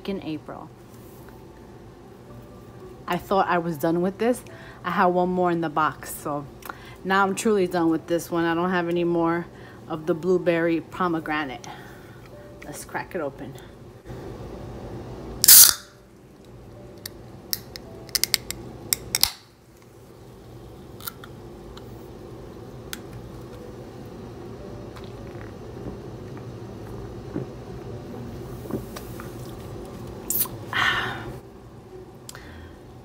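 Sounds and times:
can pop and hiss: 15.4s - 15.9s, 30.3s - 30.6s.

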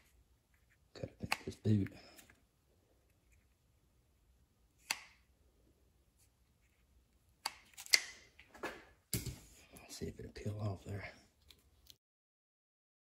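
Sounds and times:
scissors snipping rubber: 4.8s - 5.2s, 7.4s - 8.2s.

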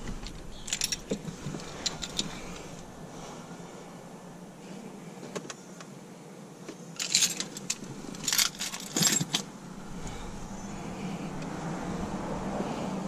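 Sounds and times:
faint low hum: 0.0s - 13.0s
car keys jangling: 0.2s - 2.9s, 7.0s - 11.5s.

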